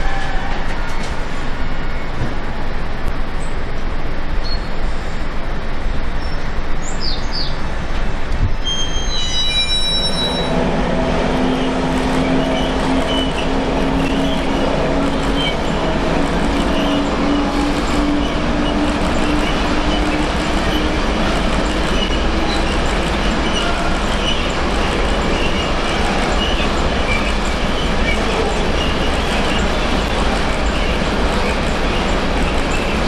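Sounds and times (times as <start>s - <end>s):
train rolling past: 0.0s - 33.0s
rising whine: 8.9s - 20.9s.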